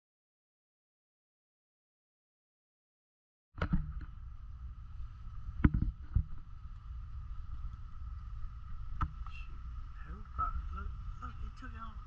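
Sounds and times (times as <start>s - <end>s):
thin high hum: 3.6s - 12.0s.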